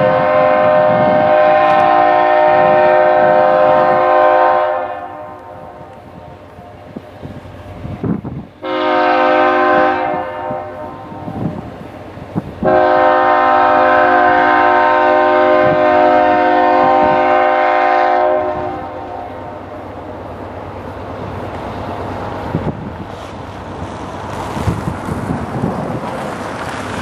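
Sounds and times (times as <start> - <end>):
locomotive air horn blasts: 0.0 - 6.4, 8.6 - 11.6, 12.6 - 19.6
train rumble and wheel clicks: 0.0 - 27.0.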